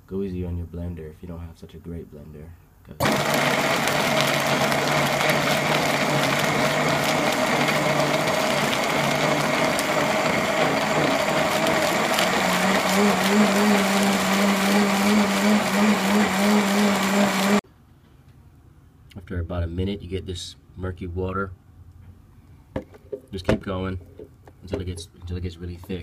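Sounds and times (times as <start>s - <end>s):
blender motor whirring: 3.0s - 17.6s.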